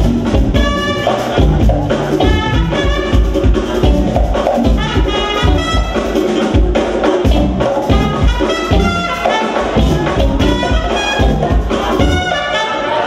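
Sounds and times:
trumpet line: 0.0 - 3.6, 4.7 - 6.3, 7.9 - 13.0
jazz fusion band playing: 0.0 - 13.0.

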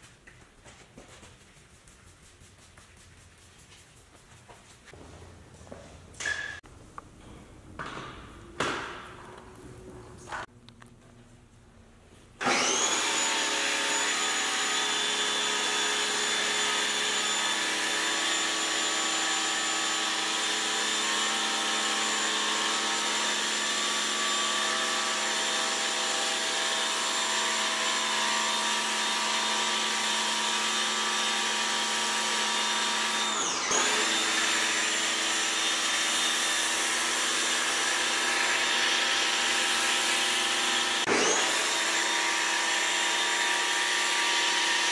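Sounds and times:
pressure washer motor whine: 12.4 - 22.1.

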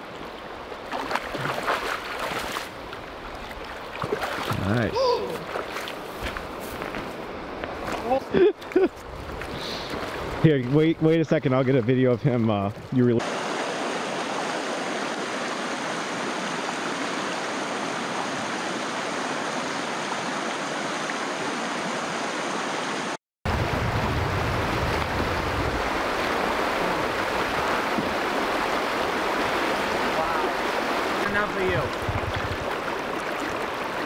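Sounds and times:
river water rushing over rocks: 13.2 - 34.0.

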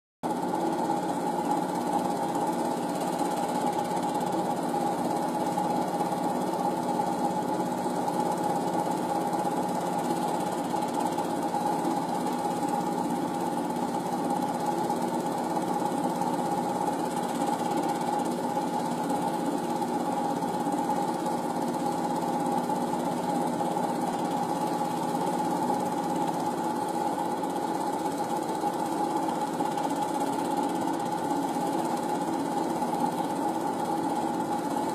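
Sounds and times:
film projector whirring: 0.2 - 34.9.

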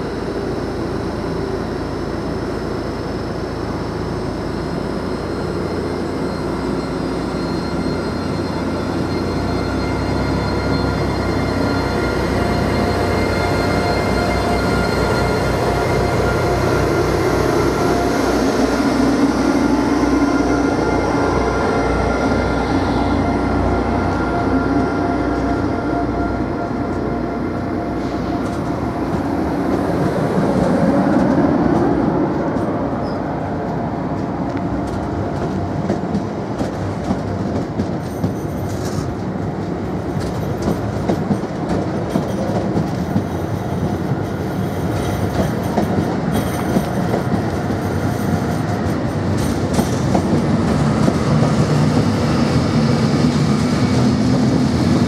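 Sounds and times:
train wheels clacking over rail joints: 44.9 - 55.0.

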